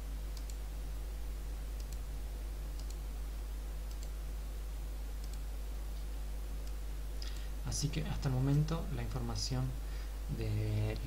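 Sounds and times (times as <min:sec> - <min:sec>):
low electrical hum: 0:00.0 - 0:11.0
computer mouse clicks: 0:00.3 - 0:00.6, 0:01.8 - 0:02.1, 0:02.7 - 0:03.0, 0:03.8 - 0:04.2, 0:05.2 - 0:05.5.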